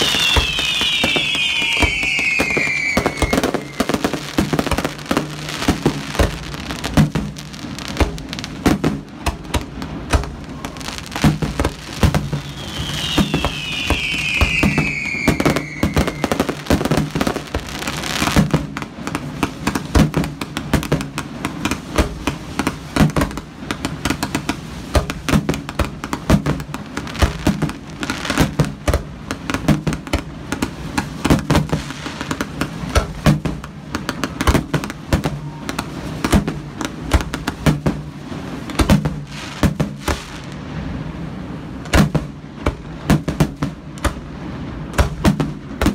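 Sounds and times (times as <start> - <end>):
firework shell bursts: 0.0 - 4.2, 12.4 - 16.6
falling firework whistle: 0.0 - 5.0, 11.7 - 18.3, 34.3 - 36.5.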